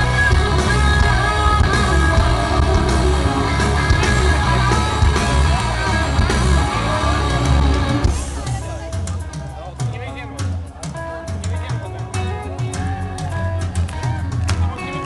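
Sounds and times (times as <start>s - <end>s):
person singing: 0.0s - 8.9s
live rock band: 0.0s - 15.0s.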